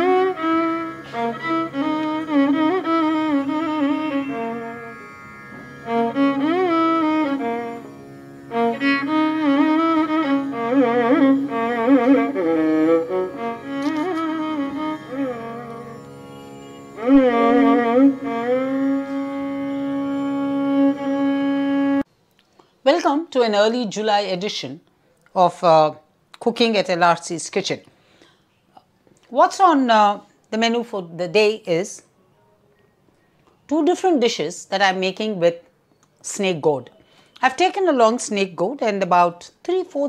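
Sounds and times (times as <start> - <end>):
bowed string melody: 0.0 - 22.1.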